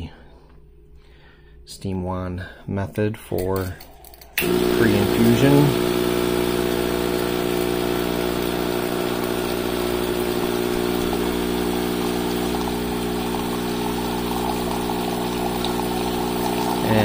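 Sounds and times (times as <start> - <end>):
water splashing into a cup: 3.6 - 17.0
pump buzzing: 4.4 - 17.0.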